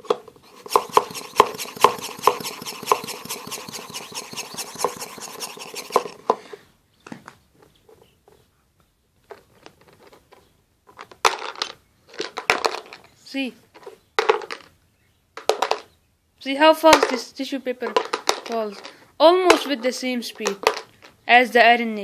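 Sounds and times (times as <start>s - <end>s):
sharp clatter: 0.4s - 6.4s
hand vacuum pump hissing: 0.4s - 6.6s.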